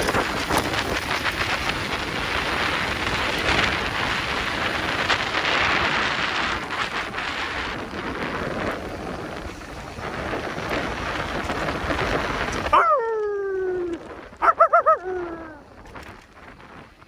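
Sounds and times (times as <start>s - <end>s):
bike tyres crunching over dirt: 0.0s - 17.0s
small clicks and rattles: 15.0s - 17.0s.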